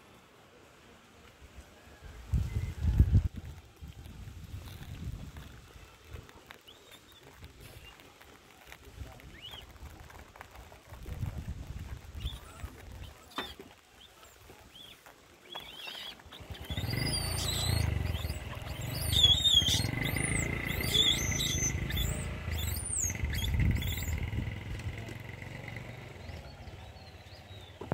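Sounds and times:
high sliding animal chirps: 0:15.6 - 0:24.4.

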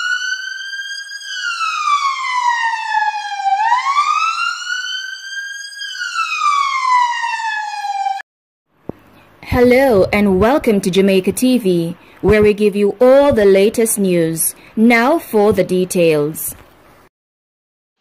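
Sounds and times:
siren wailing: 0:00.0 - 0:08.2.

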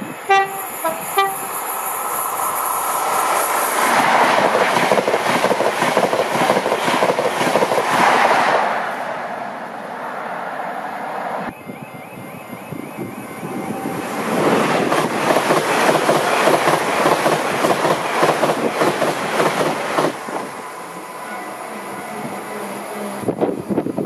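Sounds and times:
train passing at speed: 0:00.0 - 0:24.0
train horn blasts: 0:00.3 - 0:01.5, 0:21.2 - 0:23.4.

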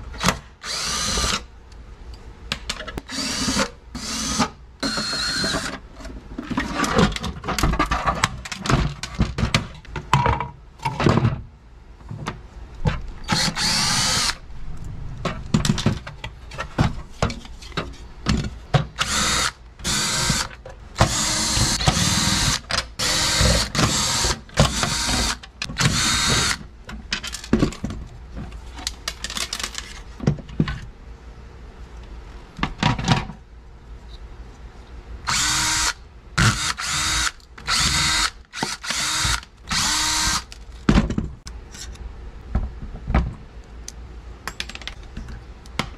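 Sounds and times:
cordless drill running: 0:00.6 - 0:01.4, 0:03.1 - 0:05.6, 0:13.3 - 0:14.4, 0:19.0 - 0:26.6, 0:35.3 - 0:40.5
screws and parts clattering: 0:28.8 - 0:30.1.

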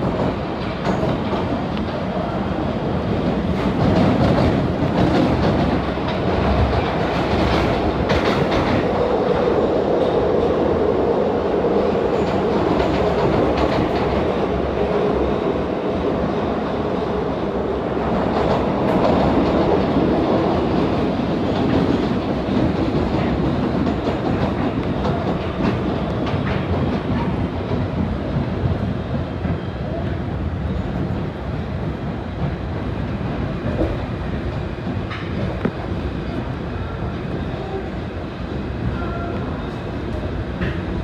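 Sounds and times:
wheels on rail in tunnel: 0:00.0 - 0:41.0.

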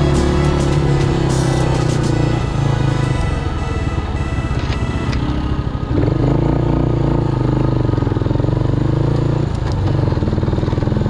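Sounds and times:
music: 0:00.0 - 0:05.7
motorcycle engine running: 0:00.0 - 0:11.0.

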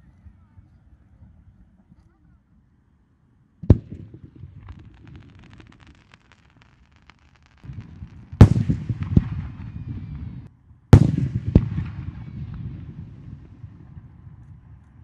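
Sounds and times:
firework shells bursting: 0:03.6 - 0:09.7
low rumble with crackle: 0:03.6 - 0:15.0.

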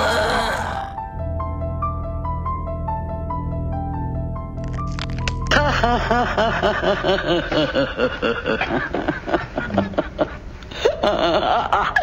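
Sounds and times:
recorded cackling laugh: 0:05.5 - 0:12.0.

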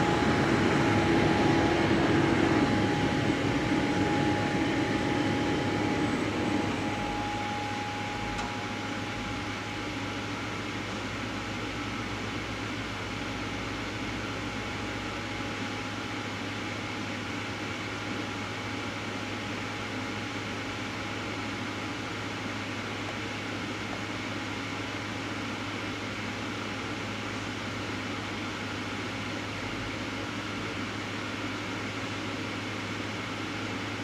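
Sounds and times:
high mechanical whine: 0:00.0 - 0:25.0
machinery hum: 0:00.0 - 0:34.0.

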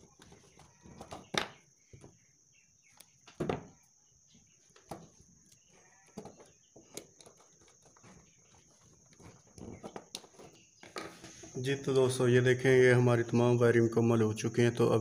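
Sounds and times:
hands handling electrical wires: 0:04.7 - 0:11.6.

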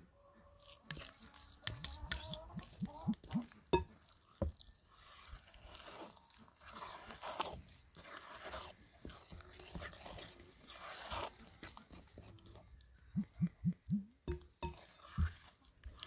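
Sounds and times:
wet squelching of stirred paste: 0:00.6 - 0:16.0
spoon knocking on glass bowl: 0:03.7 - 0:03.9, 0:14.3 - 0:15.3.

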